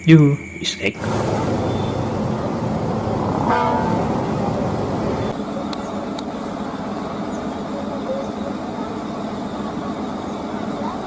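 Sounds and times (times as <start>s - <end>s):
bus diesel engine rumble: 0.2s - 11.0s
short pitched sound: 1.0s - 5.3s
quieter engine running: 1.0s - 11.0s.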